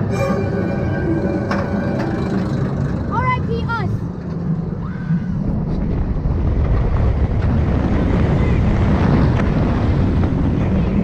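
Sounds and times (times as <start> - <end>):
wind rushing over microphone: 2.9 - 11.0.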